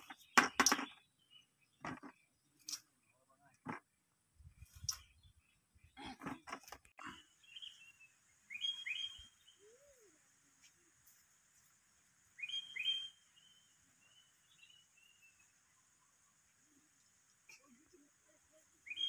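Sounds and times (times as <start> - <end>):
bird calling: 7.0 - 10.8, 12.4 - 14.8.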